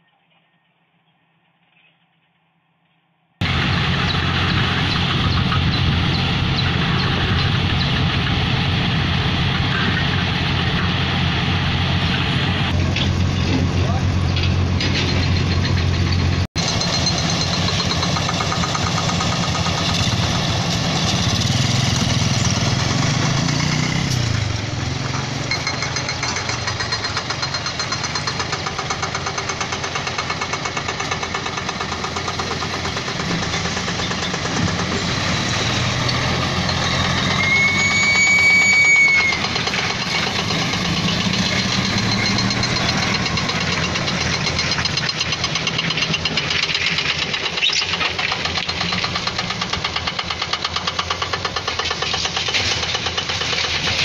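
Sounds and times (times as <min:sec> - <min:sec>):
diesel engine idling: 0:03.4 - 0:54.0
high whistle-like tone: 0:37.2 - 0:39.5.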